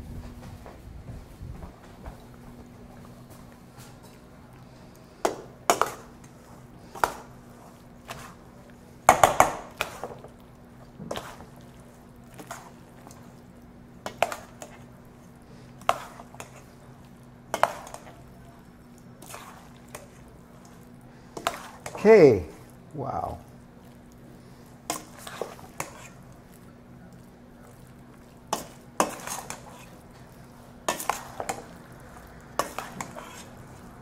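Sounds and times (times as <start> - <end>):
spoon scraping metal bowl: 21.4 - 22.0, 24.9 - 26.3, 28.5 - 30.1, 30.9 - 31.7, 32.6 - 33.6.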